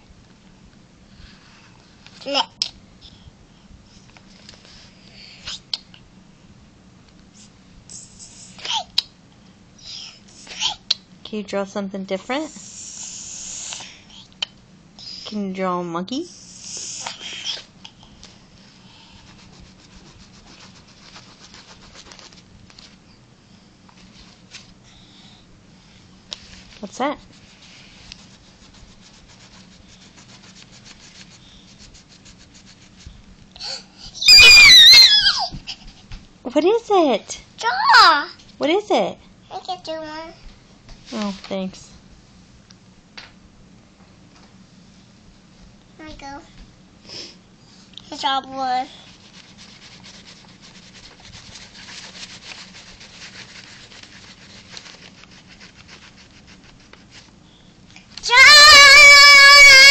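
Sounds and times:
crayon scratching on paper: 19.2 - 22.4, 27.2 - 33.0, 49.0 - 57.3.

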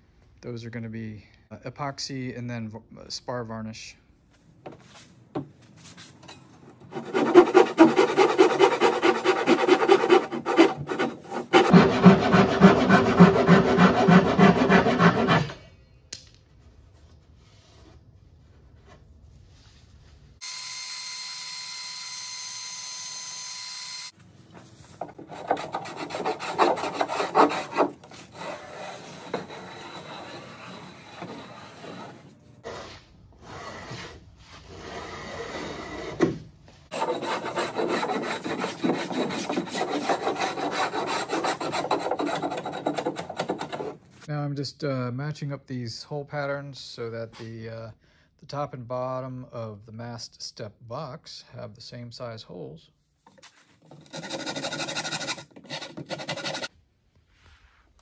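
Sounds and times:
hand rasp on wood: 6.9 - 15.6, 25.1 - 36.1, 36.9 - 44.1, 53.9 - 56.7.

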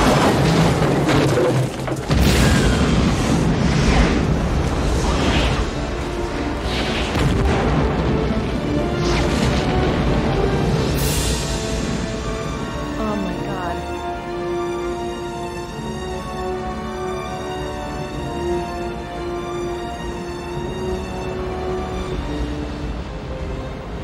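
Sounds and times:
volcanic eruption rumbling boom: 0.0 - 12.8
film score music: 0.0 - 24.0.

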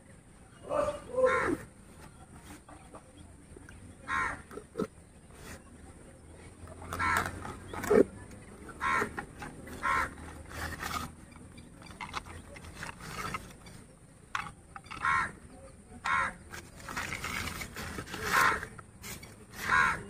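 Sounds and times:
newspaper crinkling: 12.0 - 13.7, 16.5 - 19.9.

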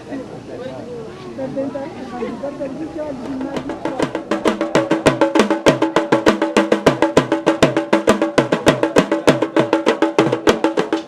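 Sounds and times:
fast steady drumming: 3.2 - 11.0.

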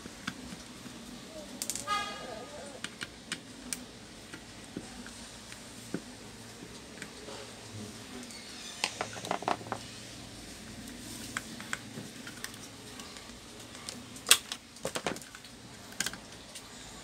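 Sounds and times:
plastic parts clicking and knocking: 8.8 - 9.8, 11.2 - 16.3.

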